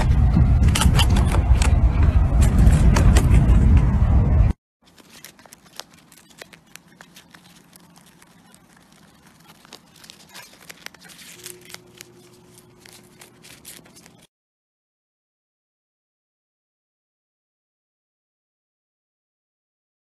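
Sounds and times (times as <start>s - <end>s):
rabbit chewing cabbage leaf: 4.8s - 14.3s.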